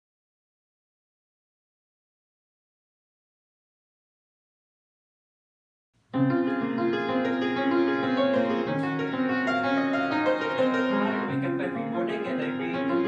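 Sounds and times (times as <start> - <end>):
upright piano playing chords: 6.2 - 13.0.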